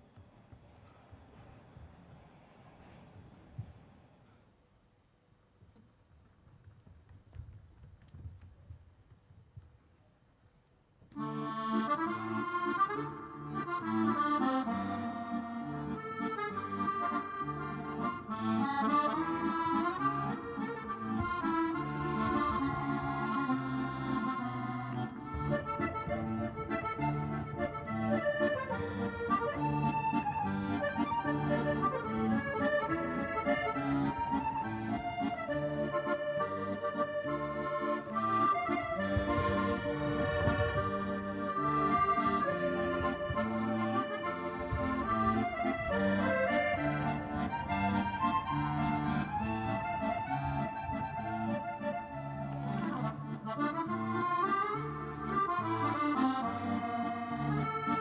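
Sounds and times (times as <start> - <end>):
accordion music: 11.1 - 58.0
low bass notes: 12.0 - 54.4.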